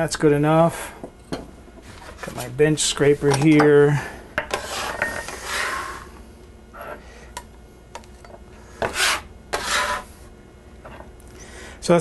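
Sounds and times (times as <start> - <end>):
steel scraper scraping wooden board: 4.5 - 6.1, 8.8 - 10.1.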